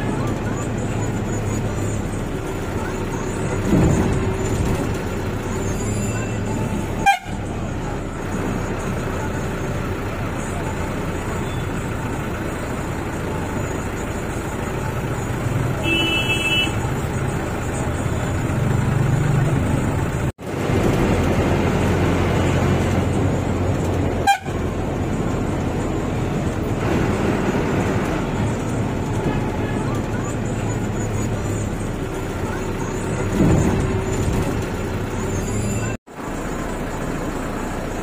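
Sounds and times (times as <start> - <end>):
van engine and road noise: 0.0 - 38.0
short high vehicle horn toot: 6.2 - 7.5, 15.8 - 16.8, 24.2 - 24.6.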